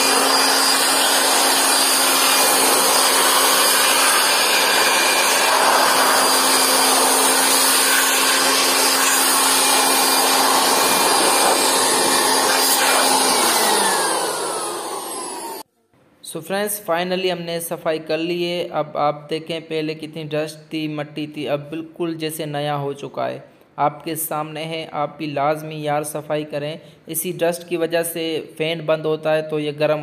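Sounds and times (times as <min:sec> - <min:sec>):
electric air blower running: 0:00.0 - 0:15.7.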